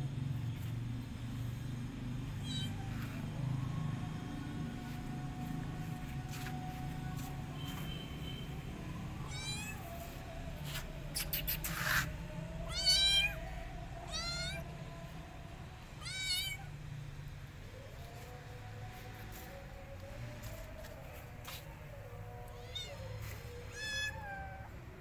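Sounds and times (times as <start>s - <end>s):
kitten mewing: 2.4s - 3.0s, 9.2s - 9.9s, 11.2s - 13.4s, 14.0s - 14.6s, 16.0s - 16.7s, 22.6s - 24.7s
scuffling noise: 4.8s - 8.1s, 9.9s - 11.0s, 18.0s - 23.6s.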